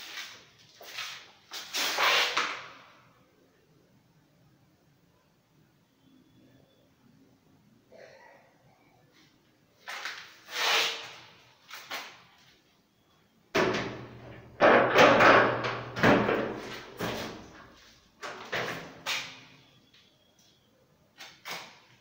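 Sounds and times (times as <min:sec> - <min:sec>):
cabinet doors knocking and banging: 0:13.6 - 0:17.4.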